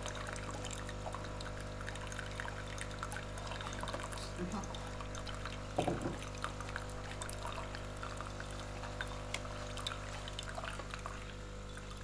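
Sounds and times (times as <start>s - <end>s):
coffee machine hum: 0.0s - 12.0s
water trickling into glass jar: 0.0s - 12.0s
short knock: 5.8s - 6.2s.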